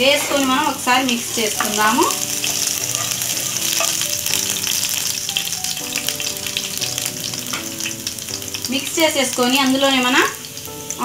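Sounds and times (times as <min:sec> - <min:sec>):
spatula stirring in pan: 0:00.0 - 0:05.5
garlic sizzling in oil: 0:00.0 - 0:11.0
soft background music: 0:00.0 - 0:11.0.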